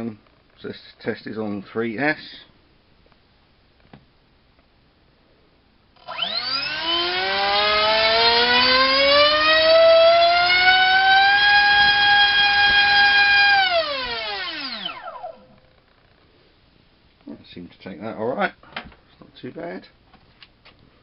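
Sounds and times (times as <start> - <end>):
electric motor whining: 6.0 - 15.6.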